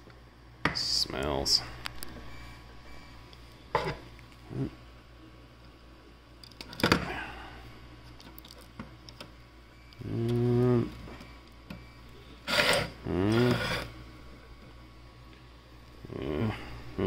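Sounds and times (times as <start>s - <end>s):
man humming: 4.4s - 4.8s, 10.0s - 11.2s, 12.8s - 13.9s, 16.0s - 17.0s.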